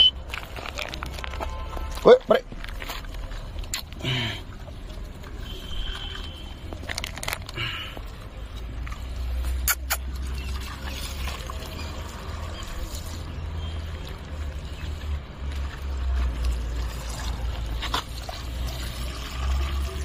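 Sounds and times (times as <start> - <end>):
puppies crunching biscuits: 0.1 - 12.2.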